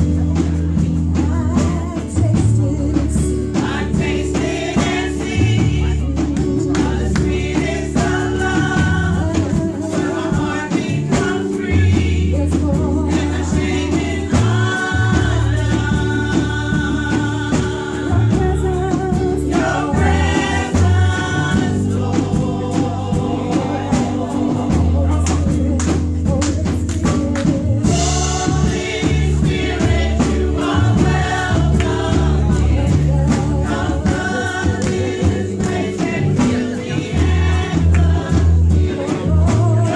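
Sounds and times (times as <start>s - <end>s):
deep bass line: 0.0s - 39.9s
percussion: 0.0s - 39.9s
women's vocal group singing gospel: 0.3s - 39.9s.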